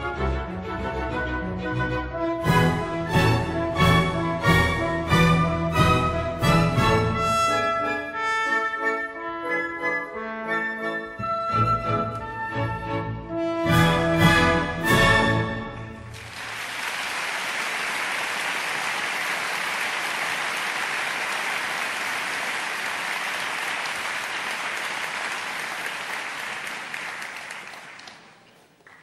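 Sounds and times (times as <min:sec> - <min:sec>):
audience applauding: 0:16.0 - 0:29.0.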